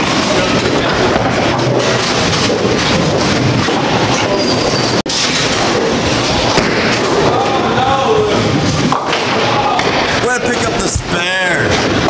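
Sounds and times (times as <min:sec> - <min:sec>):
bowling balls rolling: 0:00.0 - 0:12.0.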